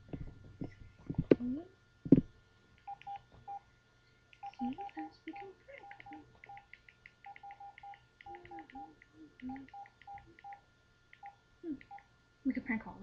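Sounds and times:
phone keypad beeps: 0:02.9 - 0:03.6, 0:04.4 - 0:10.6.

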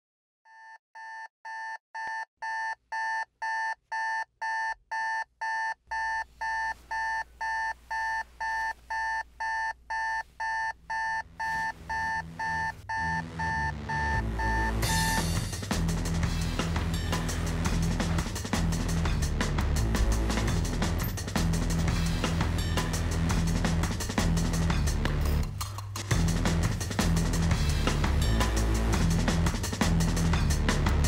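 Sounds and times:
alarm clock beeping: 0:00.5 - 0:15.4
low music: 0:11.3 - 0:31.0.

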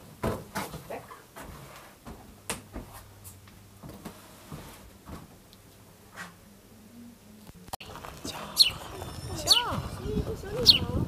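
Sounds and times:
footsteps on wooden floor: 0:03.8 - 0:05.4.

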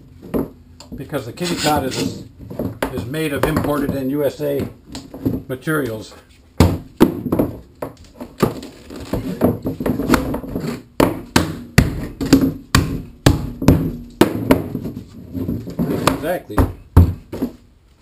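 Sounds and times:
mallet knocking on plastic pipe: 0:11.0 - 0:14.7.

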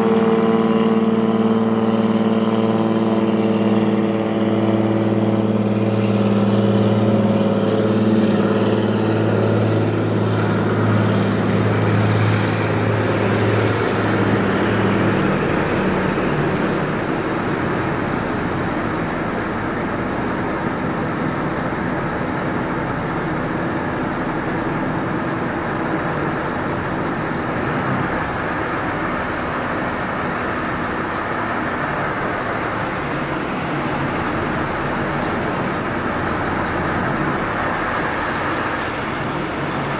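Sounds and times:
diesel engines humming: 0:00.0 - 0:39.9
steady rushing noise: 0:03.9 - 0:39.9.

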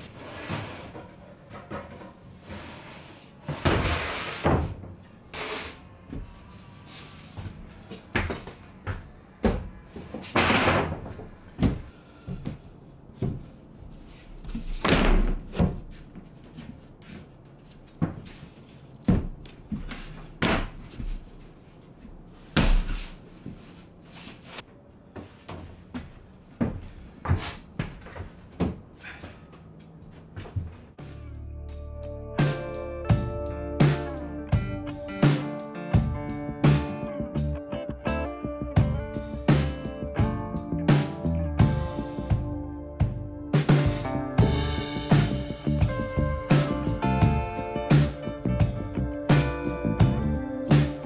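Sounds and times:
plywood panels knocking and thudding: 0:09.4 - 0:11.9, 0:14.5 - 0:16.0.

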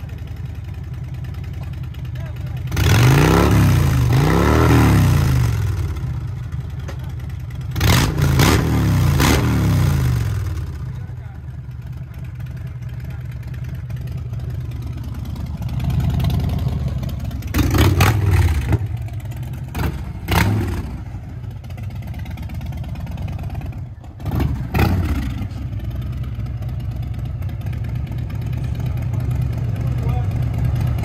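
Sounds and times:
motorcycle engine rumbling and revving: 0:00.0 - 0:31.0.

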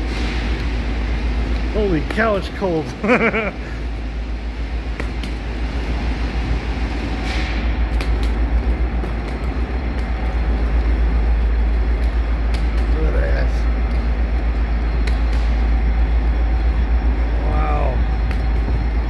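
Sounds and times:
train cars rumbling: 0:00.0 - 0:19.0
train wheel clicks: 0:07.1 - 0:16.7.

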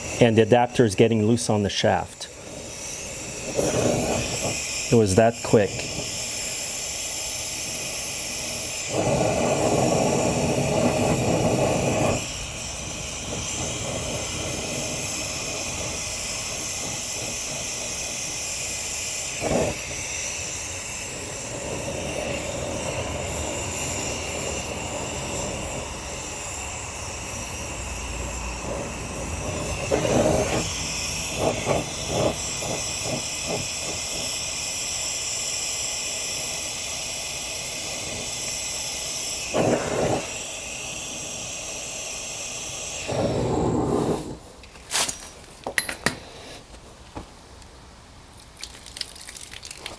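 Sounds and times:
torch flame hissing: 0:00.0 - 0:46.8.

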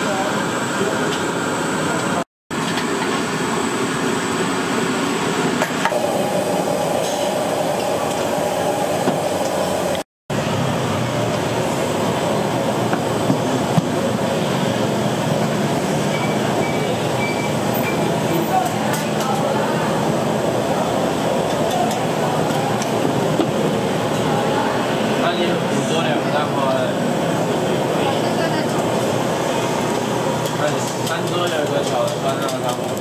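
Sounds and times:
kitchen background rushing noise: 0:00.0 - 0:33.0.

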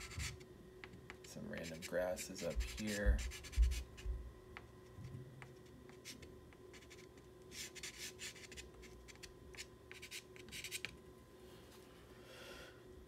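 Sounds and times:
pastel scratching on paper: 0:01.6 - 0:04.0, 0:05.4 - 0:10.9.

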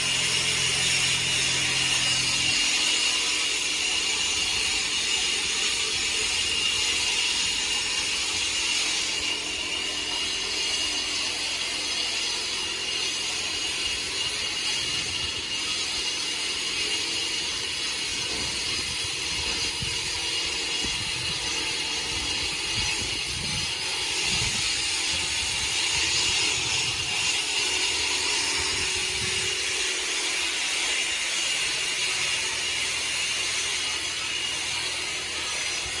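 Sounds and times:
high steady whine: 0:00.0 - 0:36.0
machinery hiss: 0:18.2 - 0:36.0.

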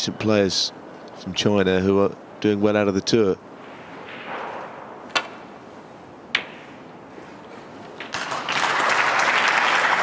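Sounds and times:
balls colliding click: 0:05.1 - 0:05.4, 0:06.3 - 0:06.6
audience applause: 0:08.1 - 0:10.0.

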